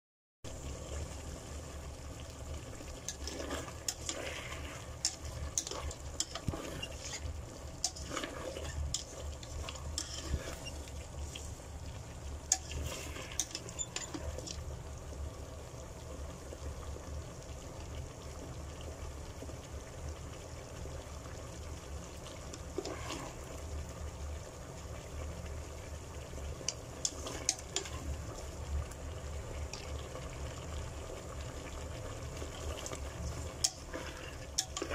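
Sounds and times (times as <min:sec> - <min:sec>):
sauce simmering and sizzling: 0:00.5 - 0:34.9
spatula scraping a pan: 0:03.1 - 0:11.5, 0:12.5 - 0:14.6, 0:22.7 - 0:23.4, 0:27.0 - 0:28.1, 0:33.6 - 0:34.9.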